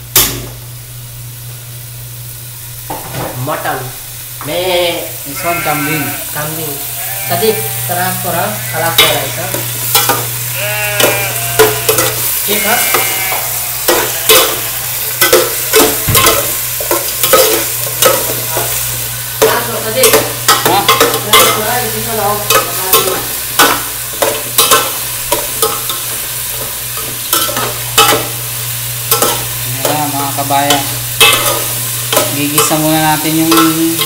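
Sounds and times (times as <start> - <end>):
meat sizzling in hot oil: 0.0 - 34.0
metal ladle scraping a pot: 11.0 - 14.6.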